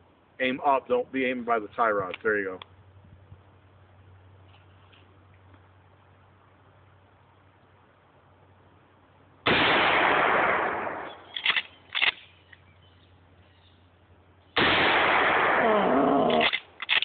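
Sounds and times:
shotgun shots: 9.5 - 12.2, 14.6 - 17.0.

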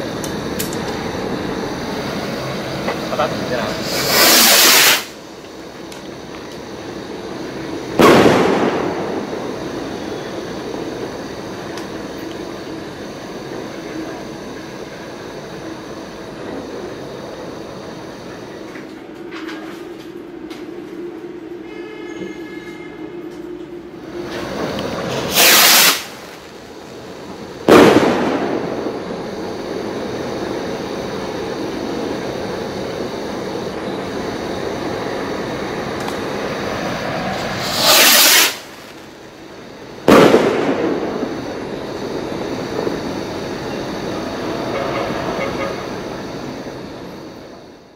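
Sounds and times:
steady rushing noise: 0.0 - 21.5, 23.8 - 47.9
firework bang: 3.7 - 5.2, 7.9 - 11.1, 24.2 - 26.6, 27.6 - 29.4, 37.0 - 39.0, 40.0 - 43.2
skyrocket whoosh: 37.2 - 38.8.

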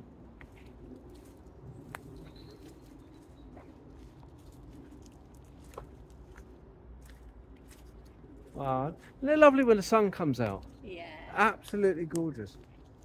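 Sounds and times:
faint high chirp: 2.0 - 3.7.

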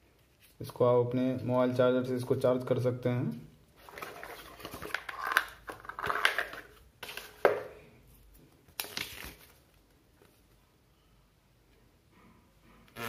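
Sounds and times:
cardboard and paper rustling: 3.8 - 7.5.

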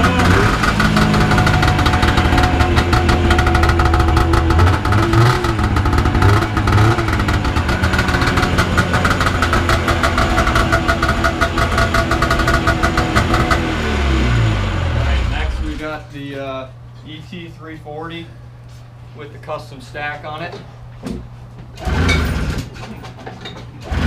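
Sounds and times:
snowmobile engine idling and revving: 0.0 - 15.8, 21.8 - 22.7.

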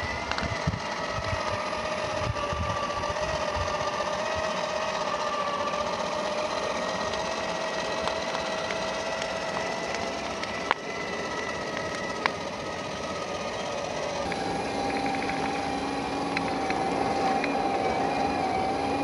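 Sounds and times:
electric motor whining: 0.0 - 19.0.

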